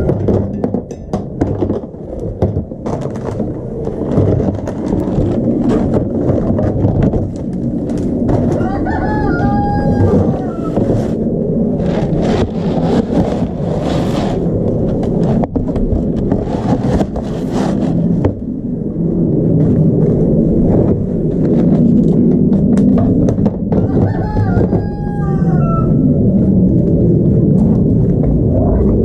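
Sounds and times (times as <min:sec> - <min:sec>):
low rumble: 0:00.0 - 0:29.0
plastic bin being dragged: 0:01.4 - 0:09.3, 0:11.8 - 0:18.4
plastic scoop scraping grain: 0:11.8 - 0:14.5, 0:16.3 - 0:18.3.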